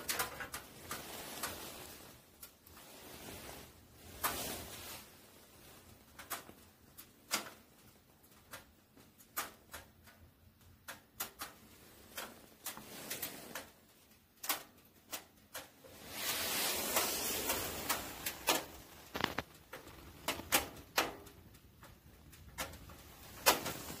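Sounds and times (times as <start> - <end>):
wood fire crackling: 0.0 - 24.0
hissing: 15.9 - 20.6.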